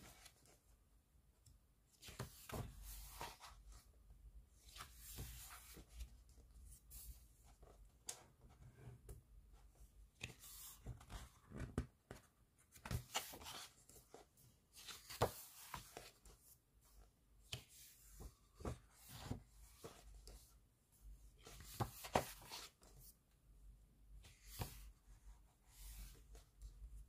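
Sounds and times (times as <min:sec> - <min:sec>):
pages turning and rustling: 0:02.0 - 0:03.8, 0:10.2 - 0:16.3, 0:21.4 - 0:23.1.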